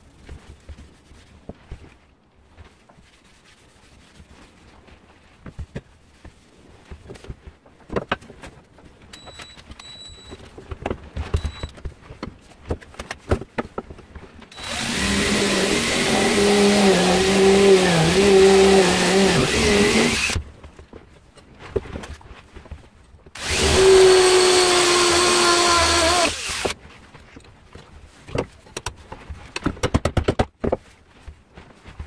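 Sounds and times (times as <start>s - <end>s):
cordless drill drilling: 14.5s - 20.4s, 23.4s - 26.8s
knocks and clicks of tool handling: 28.4s - 30.9s.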